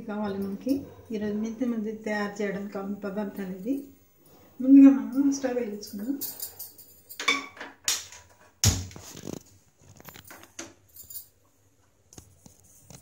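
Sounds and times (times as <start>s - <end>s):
metal pots knocking and clinking: 7.1s - 8.6s.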